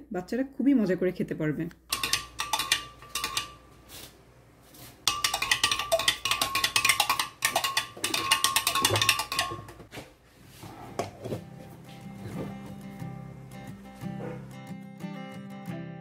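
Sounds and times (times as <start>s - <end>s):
spoon clinking against glass: 1.9s - 3.6s, 5.0s - 9.8s.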